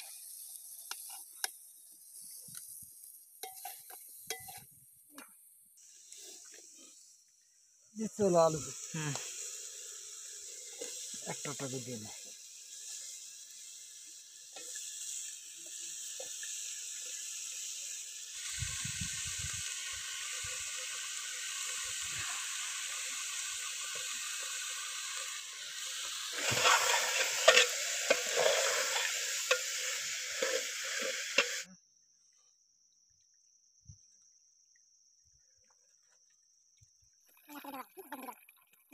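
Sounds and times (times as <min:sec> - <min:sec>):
food sizzling in hot oil: 0:00.0 - 0:31.7
ladle scraping pot: 0:26.3 - 0:31.6.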